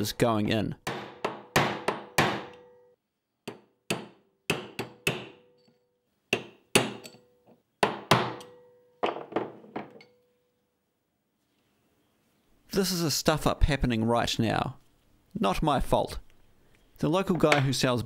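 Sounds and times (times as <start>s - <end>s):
hammer tapping metal punch: 0.8s - 2.8s, 3.5s - 10.2s.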